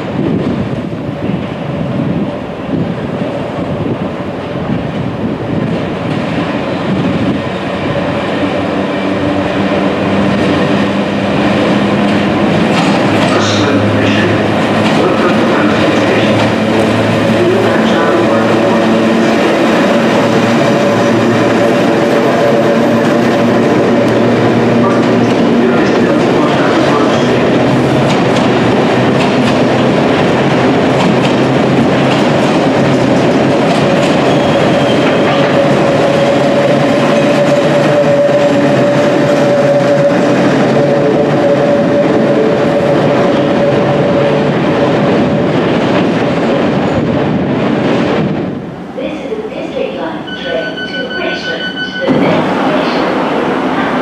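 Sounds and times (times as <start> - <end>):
train wheels rumbling on rails: 0.0 - 54.0
steady high tone: 49.1 - 53.1.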